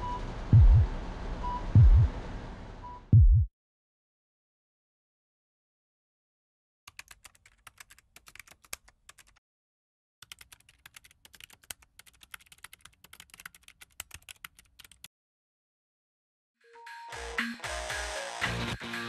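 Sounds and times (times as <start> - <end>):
rapid keyboard typing clicks: 6.9 - 9.4, 10.2 - 15.1.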